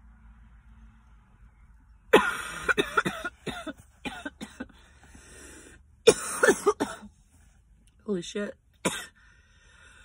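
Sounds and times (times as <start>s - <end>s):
woman coughing hard: 2.1s - 4.8s, 6.0s - 7.1s, 8.8s - 9.2s.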